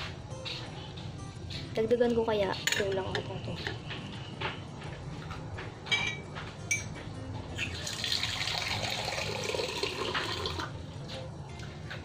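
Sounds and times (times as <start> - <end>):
water pouring: 7.7 - 10.7.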